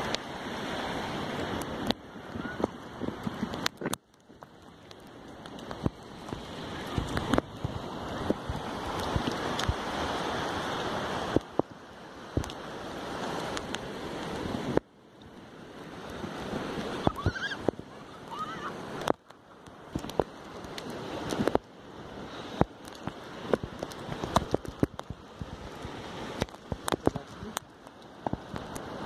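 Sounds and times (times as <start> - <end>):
wind on microphone: 0.0 - 4.0, 5.6 - 14.8, 15.9 - 19.2
surf washing onto beach: 0.0 - 29.0.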